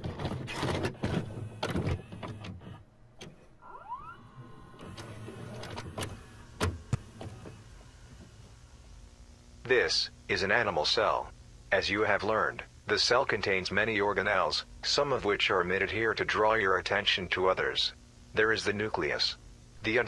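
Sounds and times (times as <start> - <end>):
tape mechanism clicks and clunks: 0.0 - 3.6, 4.5 - 8.4
motor whirring: 0.5 - 8.6.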